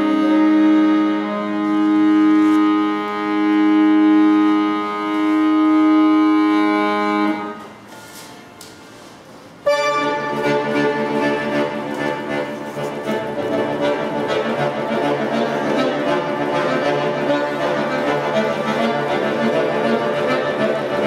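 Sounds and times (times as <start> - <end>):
accordion fast passage: 0.0 - 7.7, 9.7 - 21.0
button accordion chords: 0.0 - 7.7, 9.6 - 21.0.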